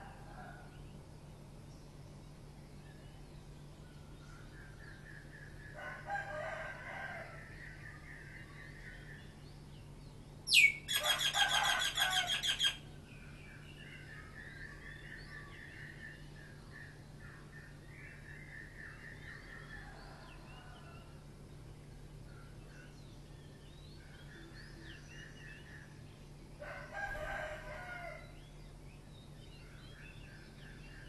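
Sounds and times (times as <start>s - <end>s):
roosters crowing: 5.8s - 7.5s, 10.5s - 12.8s, 26.6s - 28.4s.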